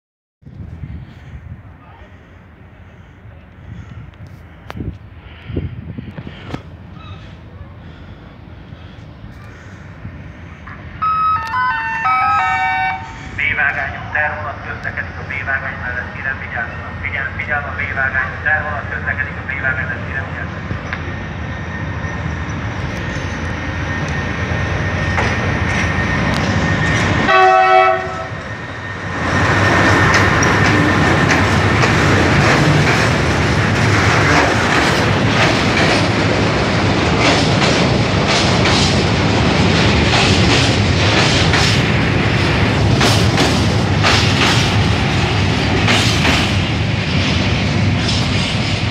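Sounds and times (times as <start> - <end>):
diesel locomotive engine running: 0.5 - 48.9
train horn blast: 11.0 - 13.2, 27.2 - 28.4
train wheels clicking over rail joints: 25.0 - 27.2, 29.3 - 48.9.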